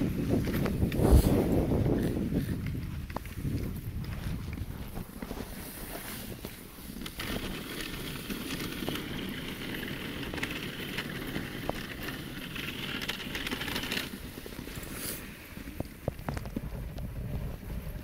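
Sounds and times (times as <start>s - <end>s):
sled runners on packed snow: 0.0s - 18.0s
hissing scrape: 14.7s - 15.5s.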